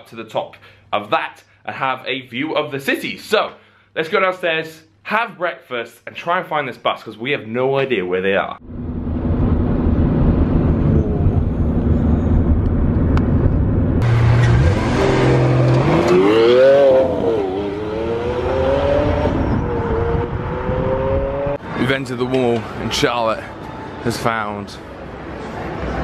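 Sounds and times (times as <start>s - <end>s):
car engine revving in tunnel: 8.6s - 21.7s.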